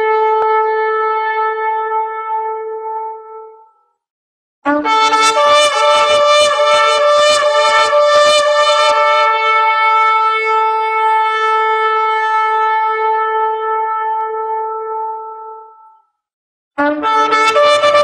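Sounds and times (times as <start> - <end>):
horn call: 4.7 - 16.0, 16.8 - 18.0.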